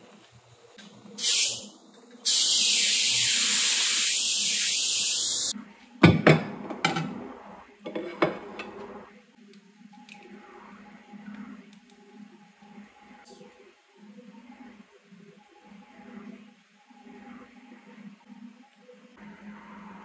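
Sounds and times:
loud steady hiss: 0:00.0 - 0:05.5
dishes and utensils clinking: 0:07.9 - 0:08.9.

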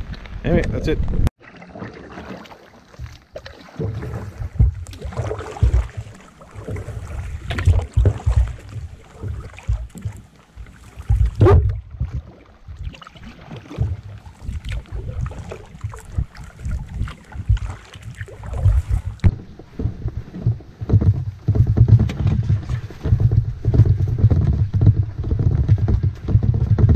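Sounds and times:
wind buffeting microphone: 0:00.0 - 0:01.3, 0:13.6 - 0:26.9
paddle splashes: 0:01.3 - 0:26.9.

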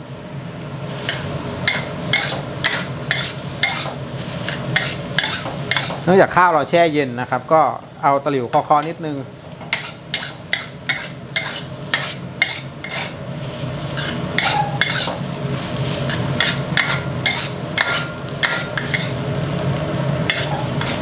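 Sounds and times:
light frying sizzle: 0:00.0 - 0:21.0
metal spatula scraping a wok: 0:01.0 - 0:06.1, 0:09.7 - 0:19.6, 0:20.2 - 0:21.0.

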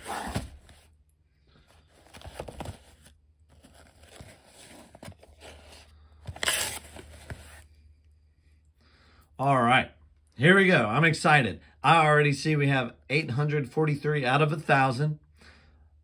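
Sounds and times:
cardboard flaps scraping: 0:00.0 - 0:00.9
packing paper rustling: 0:01.8 - 0:07.6.

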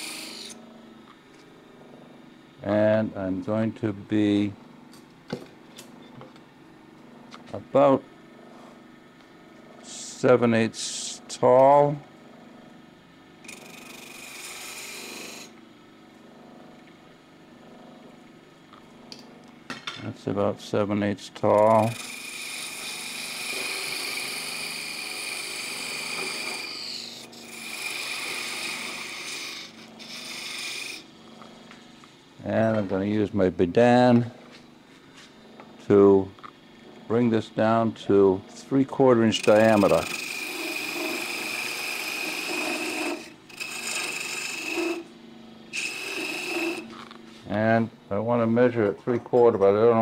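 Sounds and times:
wood lathe cutting hiss: 0:00.0 - 0:00.6, 0:09.8 - 0:11.9, 0:13.4 - 0:15.6, 0:20.2 - 0:31.2, 0:37.0 - 0:47.9.

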